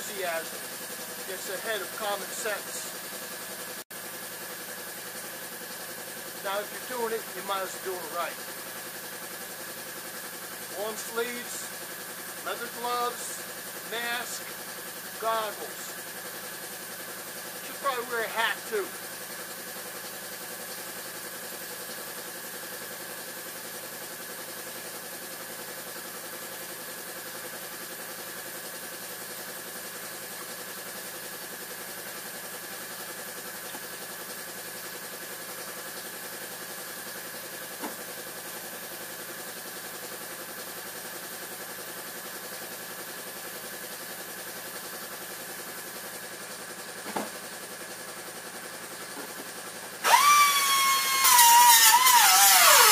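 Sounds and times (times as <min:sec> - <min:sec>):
steady mechanical hum: 0:00.0 - 0:52.9.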